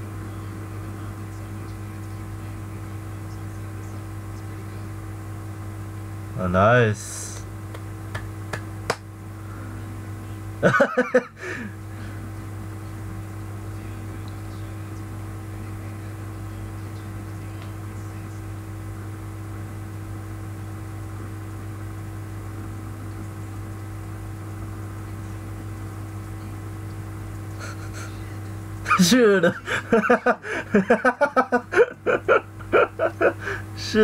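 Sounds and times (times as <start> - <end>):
electrical mains hum: 0.0 - 34.0
man's voice: 28.9 - 29.7.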